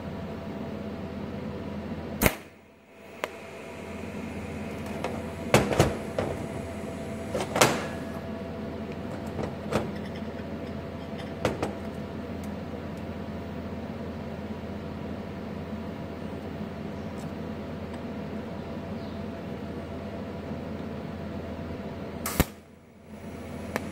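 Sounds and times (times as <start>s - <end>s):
steady machine hum: 0.0s - 23.9s.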